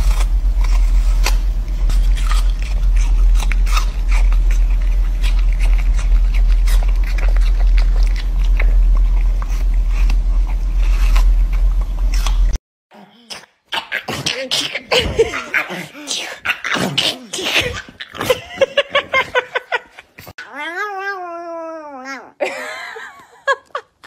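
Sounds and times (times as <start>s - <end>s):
puppy gnawing an apple: 0.0s - 12.6s
steady low hum: 0.0s - 12.6s.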